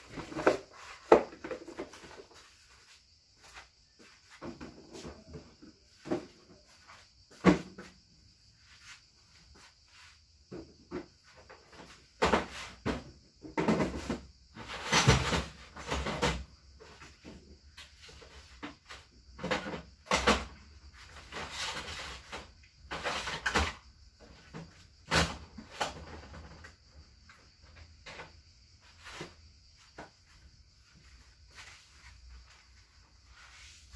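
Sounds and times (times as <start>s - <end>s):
objects knocking and rattling: 0.0s - 2.4s, 10.5s - 17.5s, 18.1s - 27.0s.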